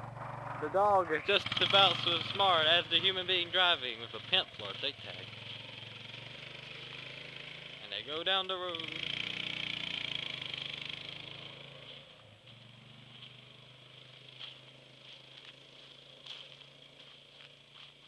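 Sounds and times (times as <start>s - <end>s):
atv engine driving away: 0.0s - 18.0s.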